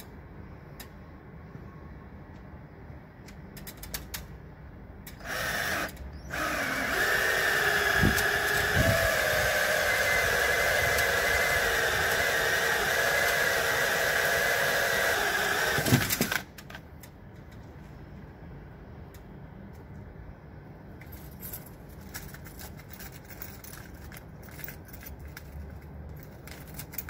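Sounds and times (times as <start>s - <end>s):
drill whining through plastic: 5.2s - 16.4s.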